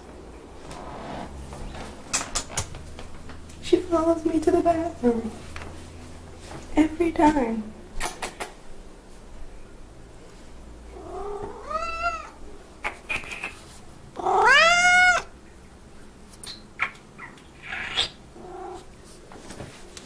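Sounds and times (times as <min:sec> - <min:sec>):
cat meowing: 0:11.0 - 0:12.4, 0:14.2 - 0:15.3.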